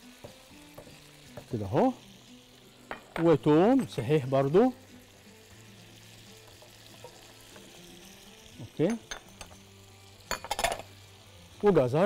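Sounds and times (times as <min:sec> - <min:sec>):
meat searing in hot oil: 0:00.0 - 0:12.0.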